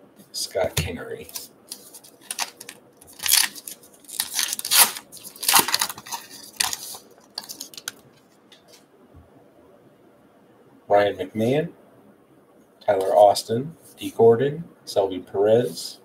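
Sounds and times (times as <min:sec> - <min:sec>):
card pack wrapper tearing: 0:01.3 - 0:08.0.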